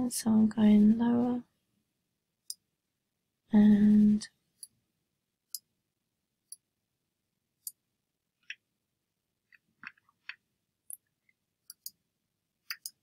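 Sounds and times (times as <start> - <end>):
computer mouse clicks: 11.7 - 12.0, 12.7 - 13.0.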